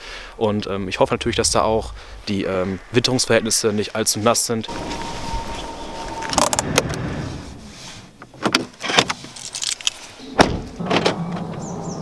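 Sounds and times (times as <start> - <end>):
keys jangling: 9.2 - 10.2
car door opening: 10.3 - 11.7.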